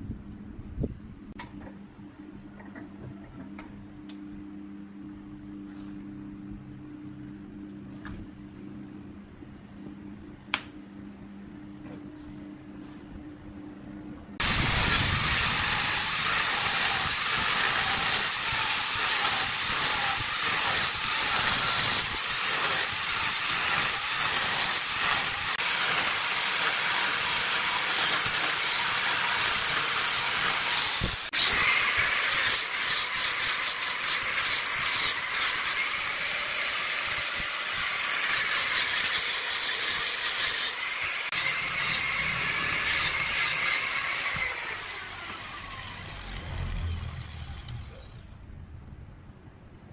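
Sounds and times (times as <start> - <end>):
angle grinder sanding wood: 14.4 - 48.1.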